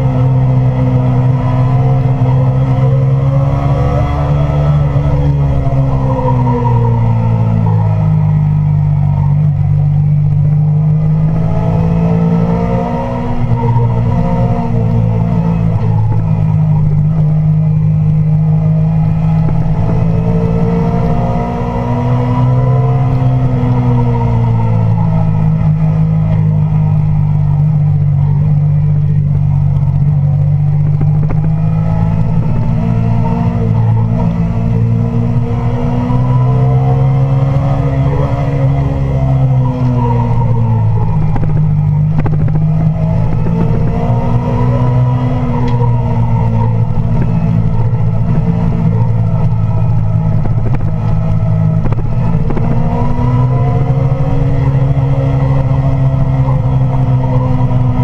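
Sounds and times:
motorcycle engine at high revs: 0:00.0 - 0:58.0
wind rush: 0:36.8 - 0:58.0.

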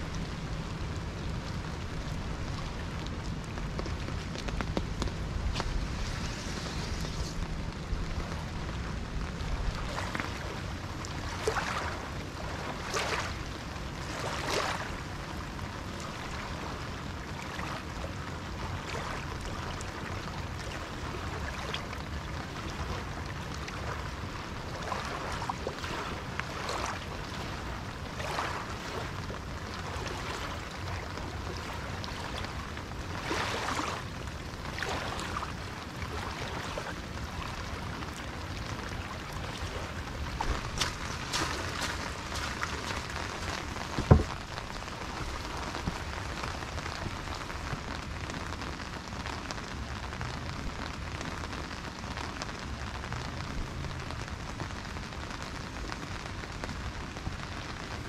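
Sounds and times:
waves splashing against rocks: 0:09.6 - 0:15.1, 0:16.0 - 0:47.8.

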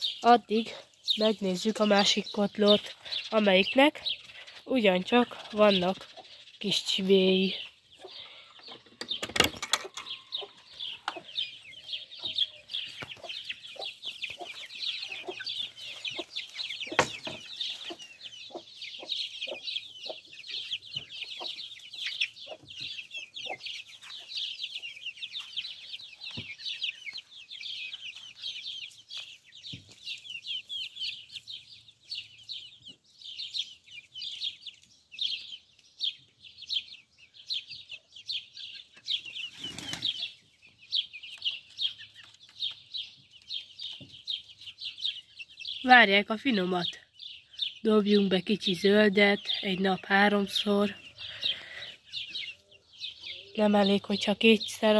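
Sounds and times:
hen clucking: 0:00.0 - 0:33.0, 0:47.8 - 0:54.9
chicks peeping: 0:00.0 - 0:54.9.

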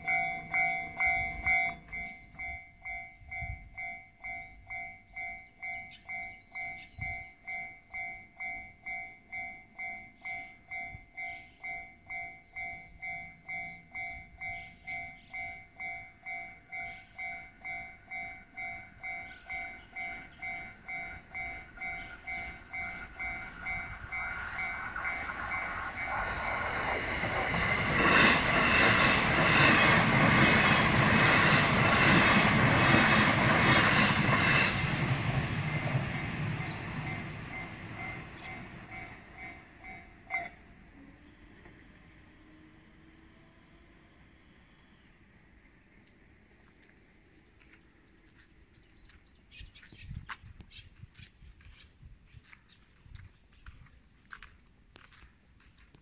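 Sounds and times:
level crossing bell dinging: 0:00.0 - 0:25.7
train running: 0:00.0 - 0:44.0.

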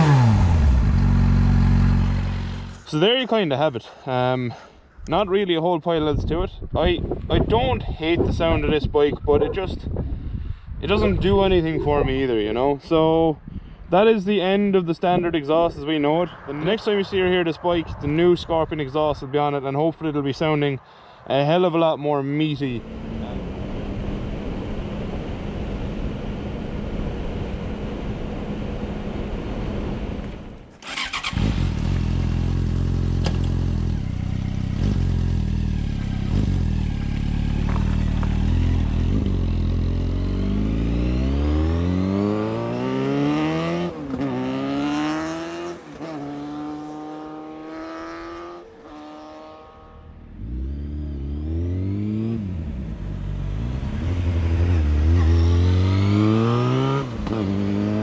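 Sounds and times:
motorcycle engine revving: 0:00.0 - 0:02.9, 0:22.8 - 0:58.0
in-helmet riding noise: 0:22.8 - 0:40.3.

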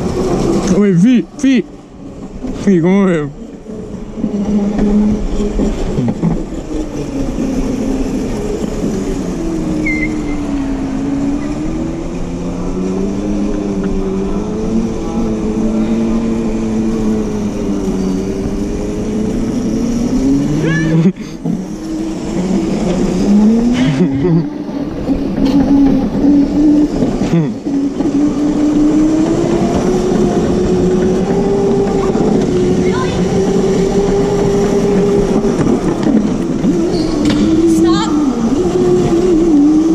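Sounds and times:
wheels rumbling on tile: 0:00.0 - 0:39.9
brief high squeak: 0:09.8 - 0:10.4, 0:36.9 - 0:37.4.

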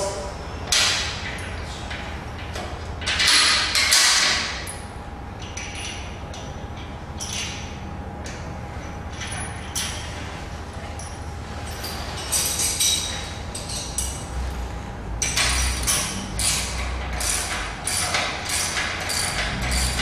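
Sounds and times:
steady background hum: 0:00.0 - 0:20.0
metal clicks and clinks: 0:15.2 - 0:20.0.

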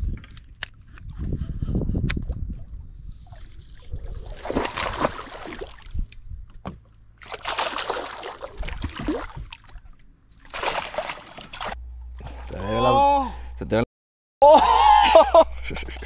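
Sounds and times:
fish thrashing in water: 0:03.9 - 0:06.0, 0:07.2 - 0:09.8, 0:10.4 - 0:12.6.

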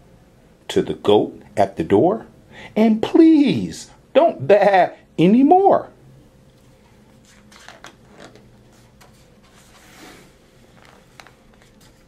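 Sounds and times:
paper rustling: 0:07.1 - 0:12.0.

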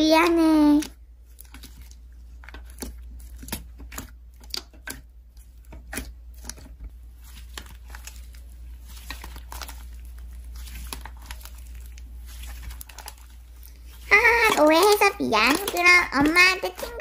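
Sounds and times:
slime crackling and popping: 0:00.0 - 0:17.0.

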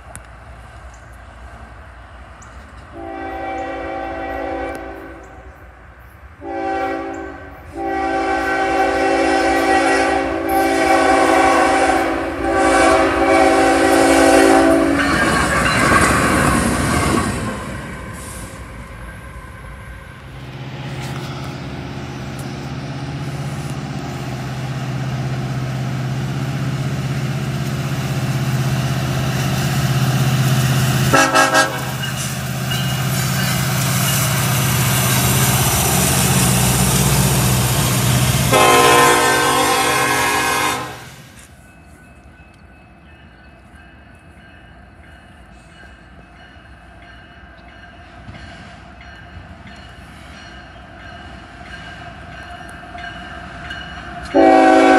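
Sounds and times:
locomotive engine drone: 0:00.0 - 0:54.9
train wheels rolling: 0:00.0 - 0:54.9
train air horn blasts: 0:02.9 - 0:05.5, 0:06.4 - 0:15.5, 0:31.0 - 0:32.0, 0:36.9 - 0:41.4, 0:54.3 - 0:54.9.

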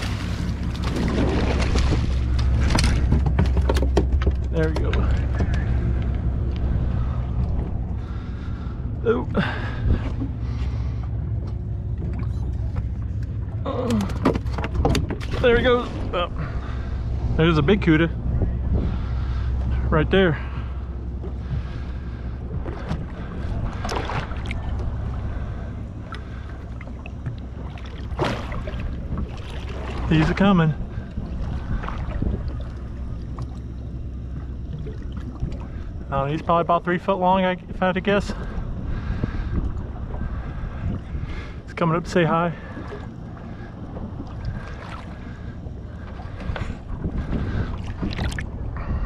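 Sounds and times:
rush of water: 0:00.0 - 0:04.8
water lapping against boat hull: 0:00.0 - 0:49.0
wind rumbling on microphone: 0:00.0 - 0:49.0
wind noise on microphone: 0:17.2 - 0:19.6, 0:38.3 - 0:41.7, 0:46.4 - 0:49.0.

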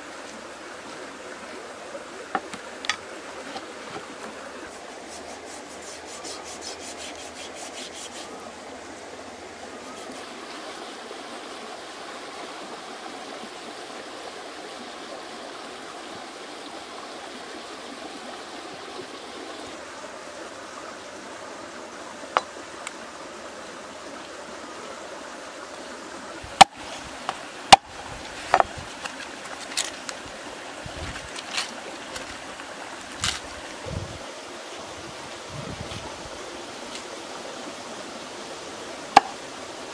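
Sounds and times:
corn ears being husked: 0:02.3 - 0:08.5, 0:26.4 - 0:34.1.

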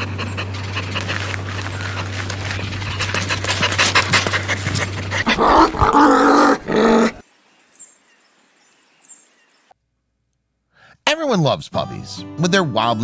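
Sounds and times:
dog panting: 0:00.0 - 0:05.8
dog growling: 0:00.0 - 0:07.2.

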